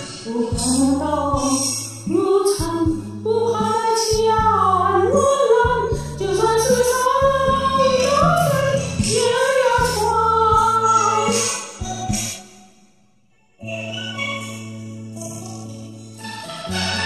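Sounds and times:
woman singing ballad: 0.0 - 11.8
karaoke backing track: 0.0 - 12.7.

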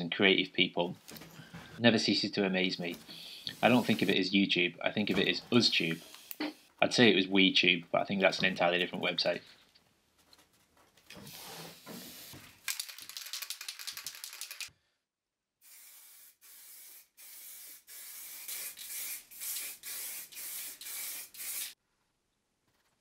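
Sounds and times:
spray can rattling hiss: 3.6 - 4.2, 11.3 - 14.7, 15.6 - 21.8
spray paint can hissing: 11.3 - 14.7, 15.6 - 21.8.

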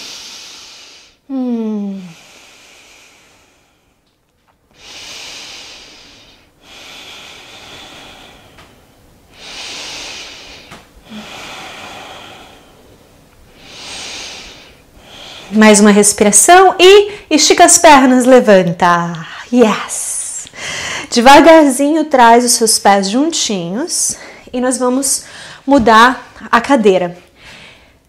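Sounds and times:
woman breathing deeply: 0.0 - 4.1, 4.7 - 15.6, 20.5 - 21.2, 25.2 - 25.7, 27.3 - 28.0.

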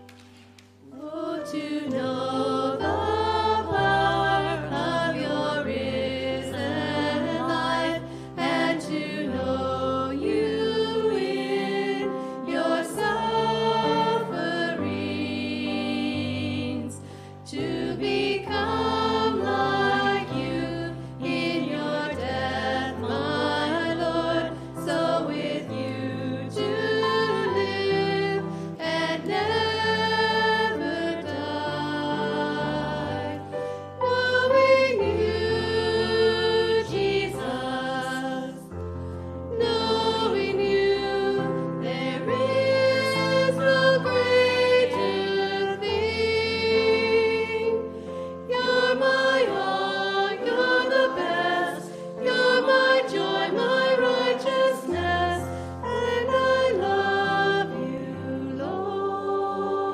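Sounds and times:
group singing a hymn: 0.8 - 59.9.

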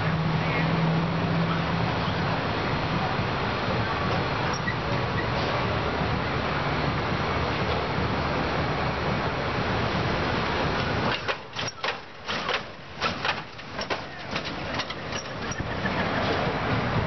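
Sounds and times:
car engine rumbling: 0.0 - 17.0
sharp clicks and knocks: 10.8 - 16.5.

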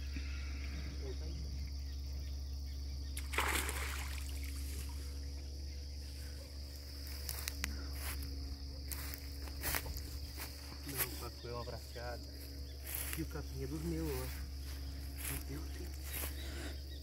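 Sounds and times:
insects chirring: 0.0 - 17.0
net splashing out of water: 3.2 - 5.0.

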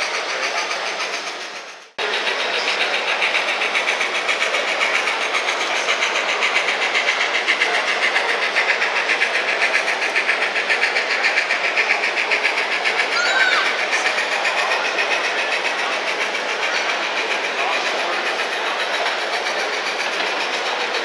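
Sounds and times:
tinny steam locomotive chuffing: 0.0 - 21.0.

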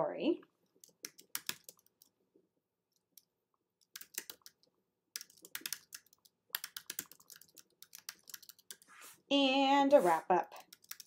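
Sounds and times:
computer keyboard typing: 0.8 - 2.2, 2.9 - 8.9, 10.5 - 11.0.

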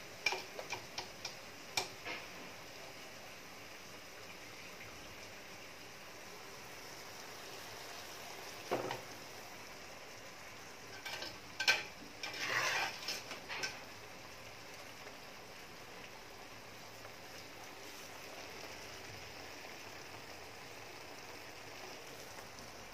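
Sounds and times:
faint hiss: 0.0 - 22.9
metal strainer scraping pan: 10.9 - 13.8.

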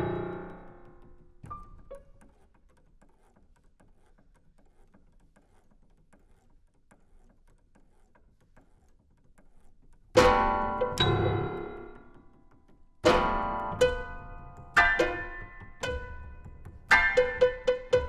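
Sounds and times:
loud piano chords ringing: 0.0 - 1.2, 10.2 - 12.2, 13.0 - 18.0
faint scattered taps: 10.8 - 18.0.

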